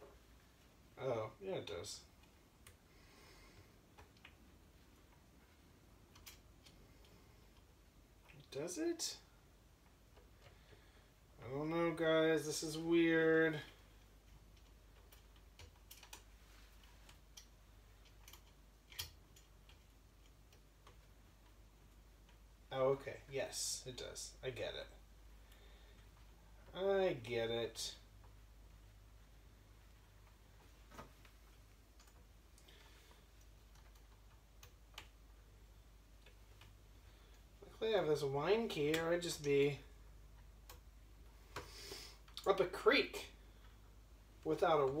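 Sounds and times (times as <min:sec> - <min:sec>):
small metal parts clicking: 0:14.2 - 0:16.3, 0:17.1 - 0:21.0.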